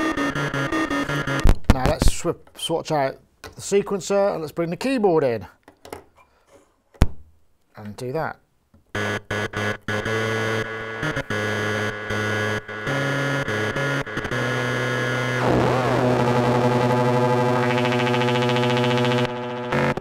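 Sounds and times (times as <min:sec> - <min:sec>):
buzzy synth notes: 0:00.0 - 0:01.5, 0:09.0 - 0:20.0
synth drone: 0:09.0 - 0:20.0
synth warbling sweep: 0:13.4 - 0:20.0.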